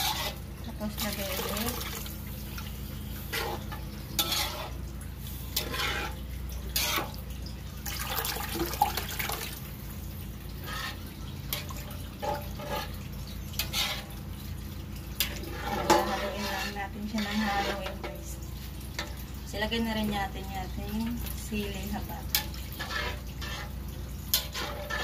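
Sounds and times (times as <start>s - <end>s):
metal fork scraping pan: 0.0s - 1.6s, 3.3s - 4.8s, 5.5s - 7.1s, 10.6s - 13.0s, 13.6s - 14.2s, 15.2s - 18.2s, 22.3s - 25.0s
liquid pouring and splashing: 0.0s - 25.0s.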